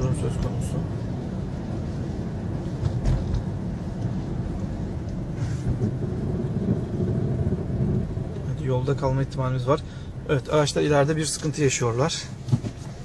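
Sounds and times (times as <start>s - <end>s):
car tyres and engine rumble: 0.0s - 13.0s
thump: 2.8s - 3.5s.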